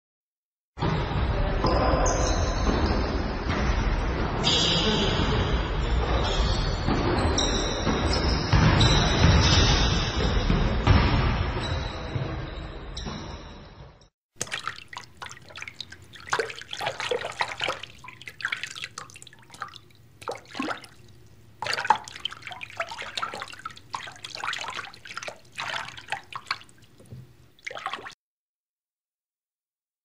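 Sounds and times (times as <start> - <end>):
water dripping and splashing: 14.4 - 28.2.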